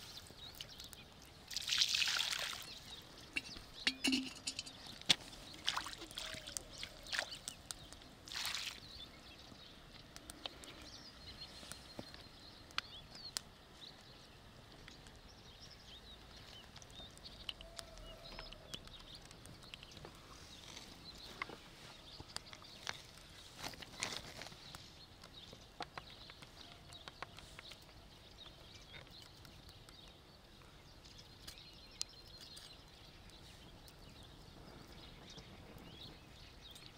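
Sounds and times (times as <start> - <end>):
water splashing and sloshing: 1.5 - 4.7, 5.4 - 7.5, 8.2 - 8.9.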